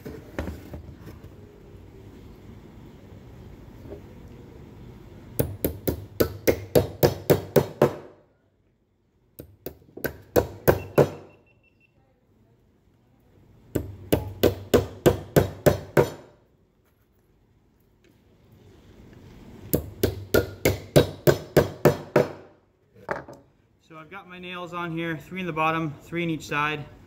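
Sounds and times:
hammer striking nails into wood: 0:05.4 - 0:08.2, 0:09.4 - 0:11.3, 0:13.7 - 0:16.4, 0:19.7 - 0:22.6.

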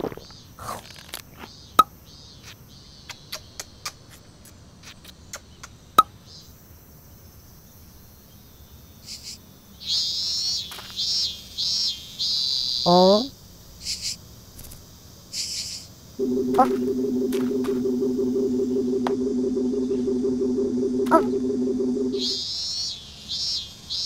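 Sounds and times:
cicada buzzing: 0:16.2 - 0:22.4
faint chirps: 0:16.2 - 0:22.4
sharp clicks: 0:16.2 - 0:22.4.

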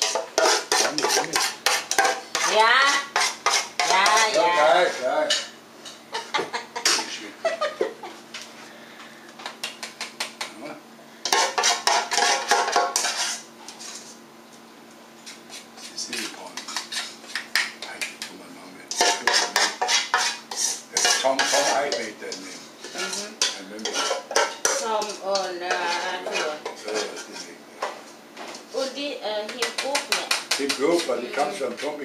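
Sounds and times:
metal spoon scraping steel bowl: 0:00.0 - 0:05.5, 0:11.3 - 0:14.1, 0:15.5 - 0:17.5, 0:18.9 - 0:27.5.

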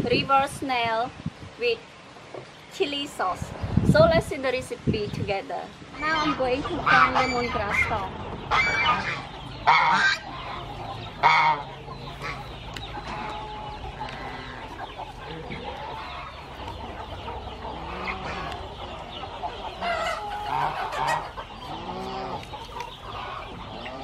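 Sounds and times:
chickens clucking: 0:02.2 - 0:24.0
chicken calls: 0:05.2 - 0:24.0.

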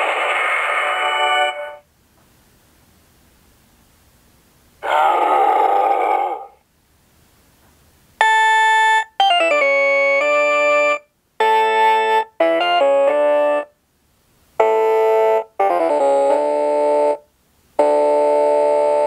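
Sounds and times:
electronic keyboard music: 0:08.2 - 0:13.8, 0:14.6 - 0:19.0.

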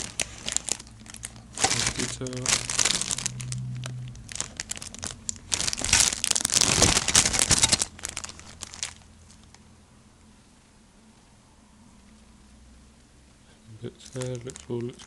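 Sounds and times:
plastic bag crinkling: 0:00.0 - 0:09.6, 0:13.9 - 0:15.0.

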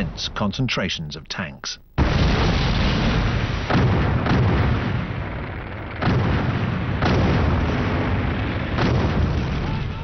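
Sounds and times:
heavy guns booming: 0:02.0 - 0:10.0.

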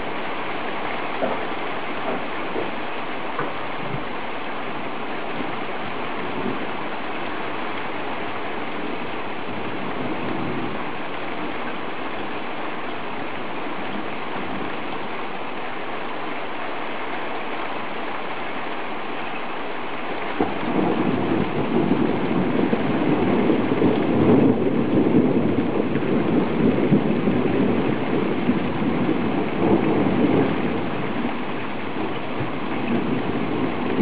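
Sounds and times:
heavy rain pouring: 0:00.0 - 0:34.0
thunder rumble: 0:05.2 - 0:07.0, 0:08.6 - 0:11.7, 0:20.3 - 0:34.0.

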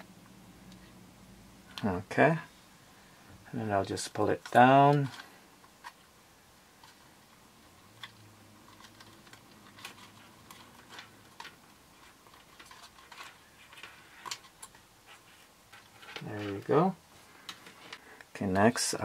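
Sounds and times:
wires and plastic connector clicking: 0:04.4 - 0:06.1, 0:07.8 - 0:14.9.

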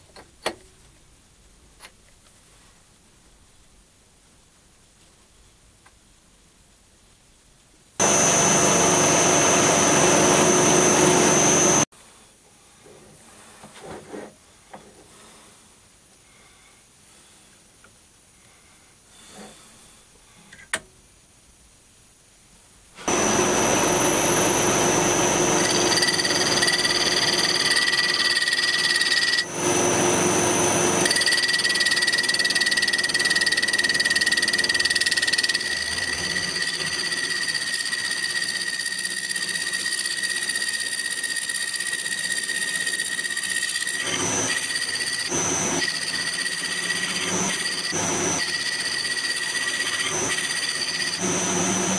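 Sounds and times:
boring bar cutting cast iron: 0:08.0 - 0:11.8, 0:23.0 - 0:51.9
metal lathe running with gear whine: 0:08.0 - 0:11.8, 0:23.0 - 0:51.9.

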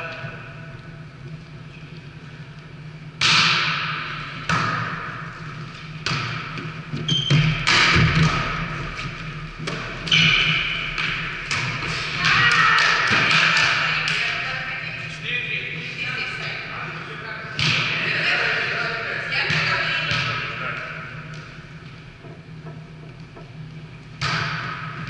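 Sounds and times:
volleyball slaps echoing: 0:03.2 - 0:05.3, 0:05.9 - 0:08.9, 0:09.6 - 0:14.6, 0:17.5 - 0:18.3, 0:19.3 - 0:21.6, 0:24.2 - 0:25.0.

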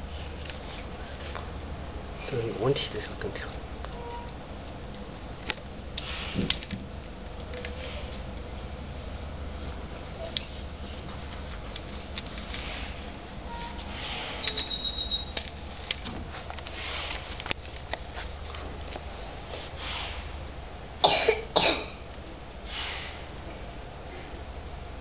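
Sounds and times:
steady low hum: 0:00.0 - 0:25.0
person coughing: 0:21.0 - 0:22.0.

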